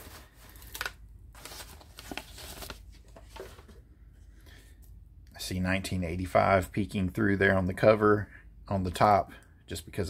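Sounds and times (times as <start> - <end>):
packing paper rustling: 0.0 - 3.8.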